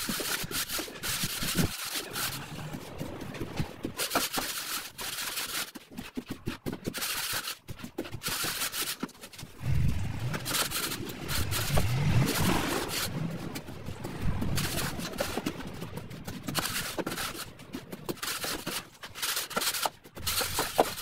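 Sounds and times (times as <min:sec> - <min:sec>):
wooden board scraping screed: 0:00.0 - 0:21.0
low wavering hum: 0:09.5 - 0:16.2.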